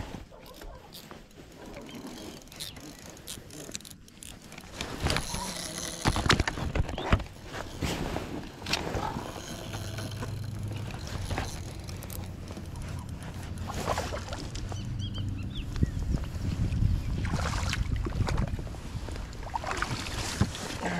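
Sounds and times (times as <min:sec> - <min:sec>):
fishing gear clicks and rattles: 0:00.2 - 0:16.3.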